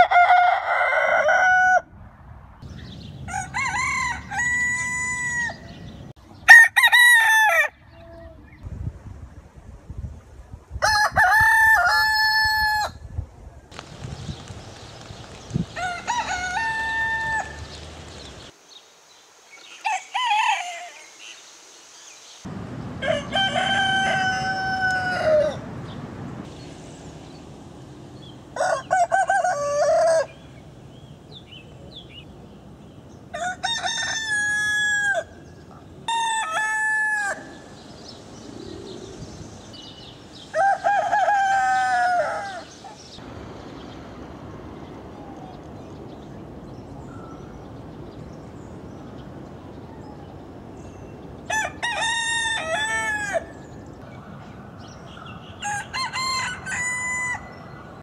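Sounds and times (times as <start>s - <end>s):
roosters crowing: 0.0s - 1.9s, 2.9s - 8.0s, 10.8s - 13.0s, 15.6s - 18.5s, 19.7s - 21.2s, 23.0s - 25.8s, 28.3s - 30.7s, 33.3s - 43.2s, 51.4s - 54.0s, 55.4s - 58.0s.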